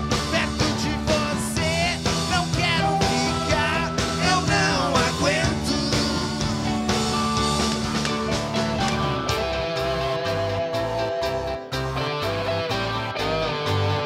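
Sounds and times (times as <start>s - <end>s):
drums: 0.0s - 14.0s
electric guitar: 0.0s - 14.0s
keyboards: 0.0s - 14.0s.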